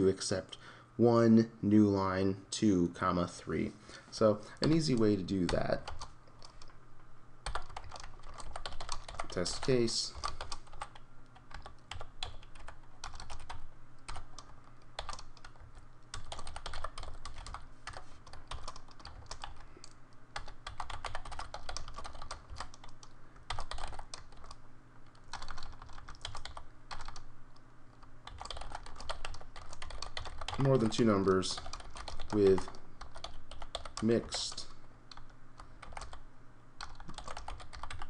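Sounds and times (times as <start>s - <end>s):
faint low hum: 0.0s - 38.0s
typing on computer keyboard: 7.4s - 24.6s, 25.3s - 27.3s, 28.2s - 30.8s, 31.5s - 34.1s, 35.1s - 36.2s, 36.8s - 38.0s.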